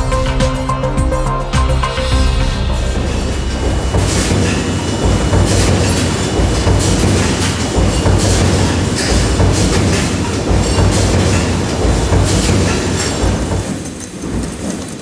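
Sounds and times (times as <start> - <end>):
low machine hum: 1.0 - 14.1
stamping press strikes: 3.6 - 14.4.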